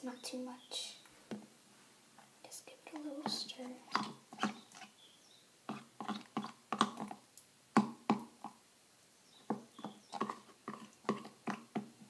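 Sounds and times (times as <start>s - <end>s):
stick stirring sticky soap: 2.9s - 5.0s, 5.7s - 7.2s, 9.5s - 12.0s.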